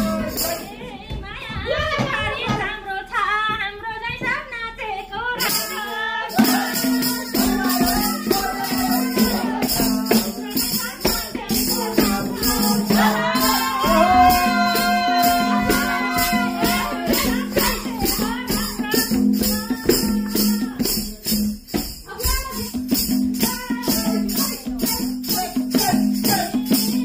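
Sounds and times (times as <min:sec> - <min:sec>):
loud dance music with singing: 0:07.2 - 0:18.6.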